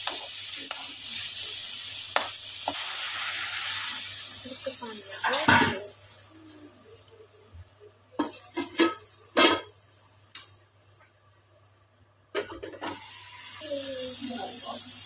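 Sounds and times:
paste sizzling in hot oil: 0:00.0 - 0:07.2, 0:12.8 - 0:15.0.

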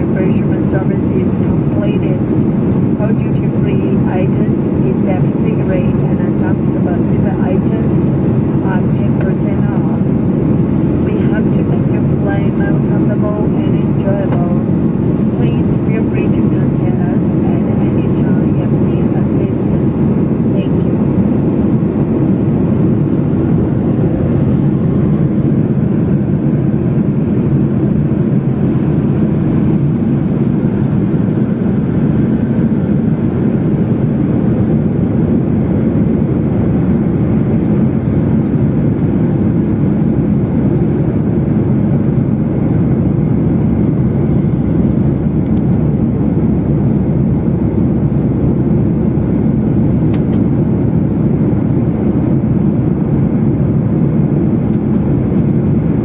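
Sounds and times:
airliner cabin rumble: 0:00.0 - 0:56.0.

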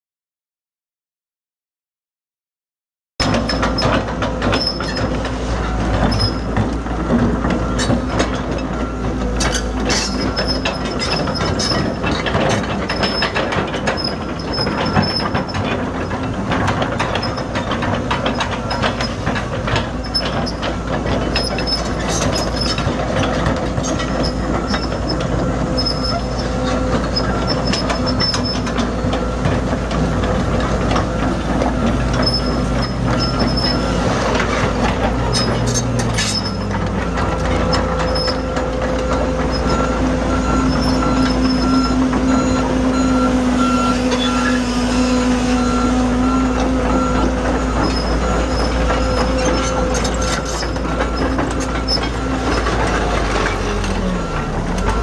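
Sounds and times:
excavator diesel engine running: 0:03.2 - 0:55.0
steel tracks clanking: 0:03.2 - 0:55.0
metal on metal squeals: 0:09.4 - 0:12.3, 0:23.8 - 0:28.7, 0:32.1 - 0:55.0.

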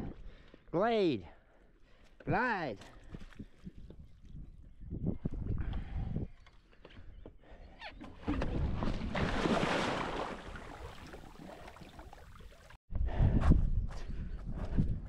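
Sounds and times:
water splashing and rushing: 0:08.3 - 0:12.8.

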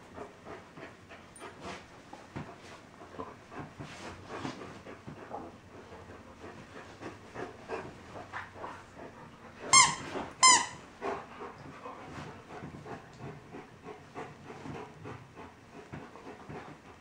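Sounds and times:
dogs panting and scuffling: 0:00.0 - 0:17.0.

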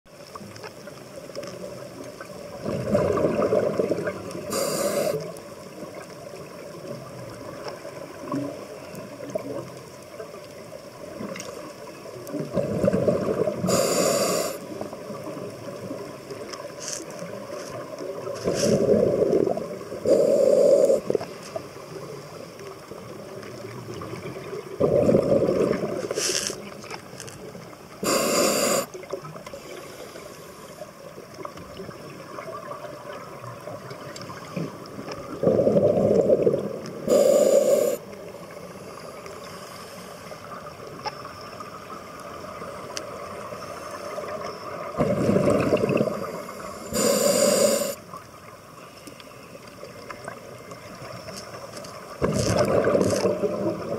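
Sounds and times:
exhaled bubbles rushing: 0:02.4 - 0:04.5, 0:12.4 - 0:13.7, 0:18.1 - 0:21.4, 0:23.8 - 0:26.2, 0:34.6 - 0:37.2, 0:44.9 - 0:46.4, 0:52.2 - 0:53.9
regulator inhale hiss: 0:04.4 - 0:05.4, 0:13.6 - 0:14.8, 0:20.0 - 0:21.2, 0:28.0 - 0:30.9, 0:37.0 - 0:38.1, 0:38.7 - 0:40.5, 0:46.2 - 0:48.0.

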